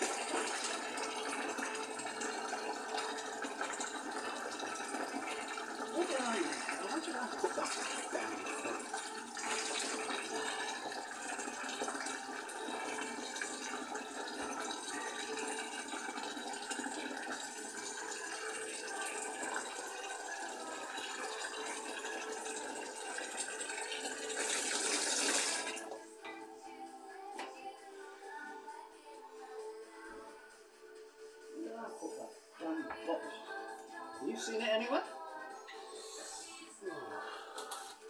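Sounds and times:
tap running water into sink: 0.0s - 26.4s
faint music: 0.0s - 38.0s.

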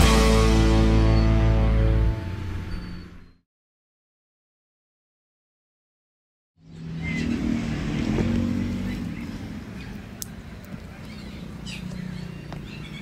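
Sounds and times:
vehicle engine running: 6.6s - 13.0s.

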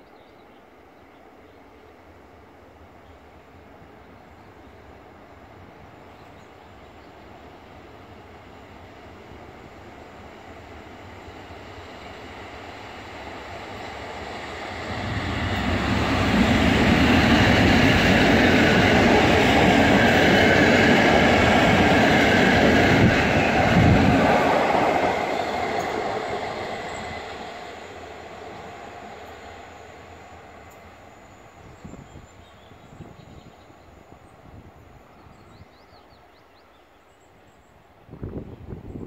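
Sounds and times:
train wheels rumbling on rails: 4.9s - 35.9s.

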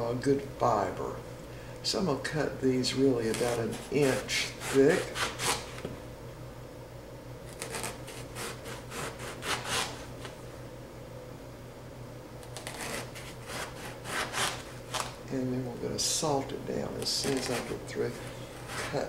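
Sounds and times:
faint steady hum: 0.0s - 19.0s
knife slicing on cutting board: 3.3s - 5.8s, 12.6s - 15.1s, 17.2s - 19.0s.

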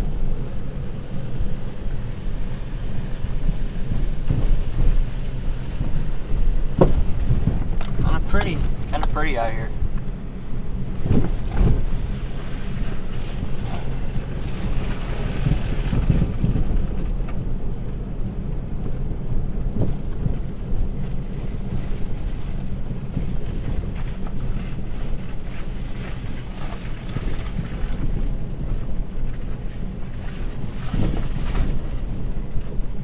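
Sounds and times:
engine and tyres rumbling: 0.0s - 33.0s
knocks over bumps: 5.8s - 9.2s.

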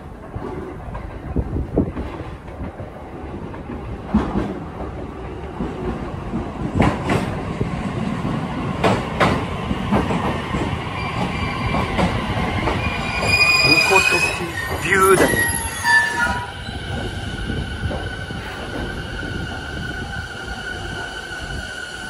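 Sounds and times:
train rumble: 0.0s - 22.0s
brakes squealing: 13.1s - 16.5s.

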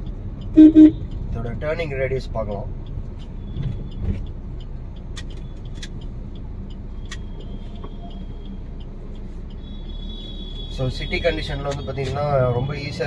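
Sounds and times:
diesel engine rumble in car cabin: 0.0s - 9.8s
road noise: 0.0s - 13.0s
sharp clicks: 2.4s - 10.6s.

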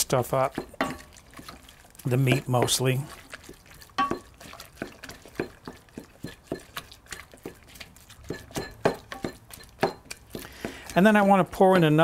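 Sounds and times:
wooden spatula stirring food in pot: 0.0s - 12.0s
spatula knocking against pot: 4.0s - 6.8s, 8.3s - 11.0s.

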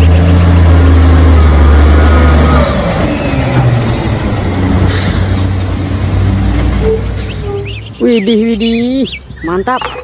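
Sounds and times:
garbage truck diesel engine: 0.0s - 9.4s
tyres rumbling: 0.0s - 10.0s.

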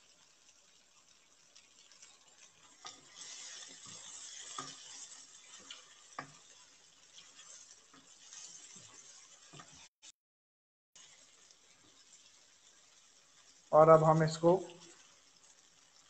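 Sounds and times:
faint sauce sizzle: 0.0s - 9.9s, 11.0s - 16.0s
spatula stirring thick sauce: 0.5s - 9.9s.

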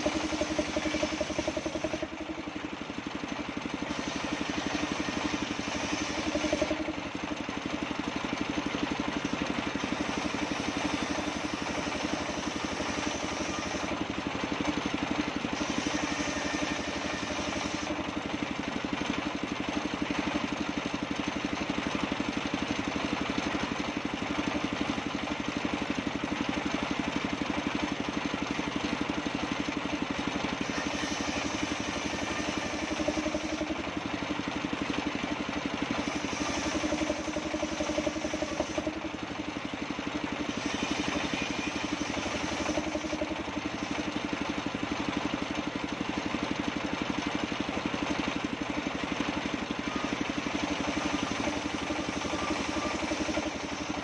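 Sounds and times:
circular sawmill ripping wood: 3.9s - 7.1s, 9.8s - 14.2s, 30.6s - 34.8s, 35.9s - 39.1s.

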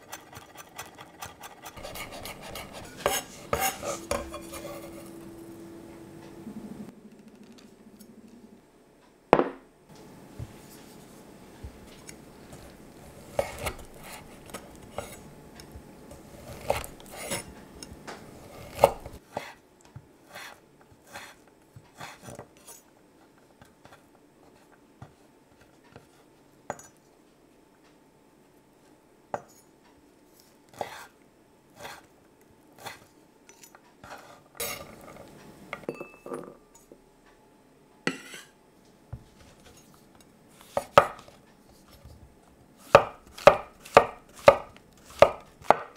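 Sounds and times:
knife chopping on wooden board: 1.8s - 4.7s, 13.3s - 15.2s, 16.5s - 17.5s, 40.7s - 41.4s, 42.8s - 45.9s
ceramic bowl knocking on table: 9.4s - 9.6s.

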